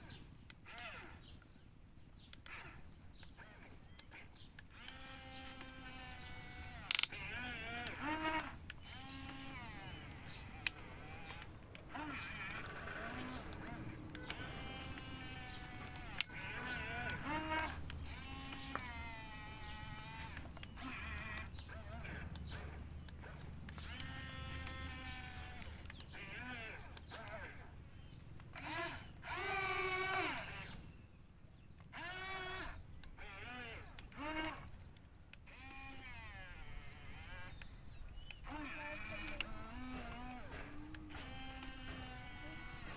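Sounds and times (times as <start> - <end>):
low steady hum: 0.0 - 42.9
toy excavator electric motors whining: 0.0 - 42.9
sharp click: 36.8 - 42.9.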